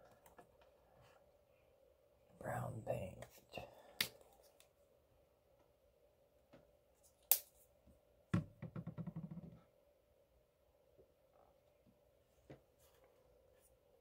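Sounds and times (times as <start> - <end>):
knock on workbench: 8.3 - 9.6.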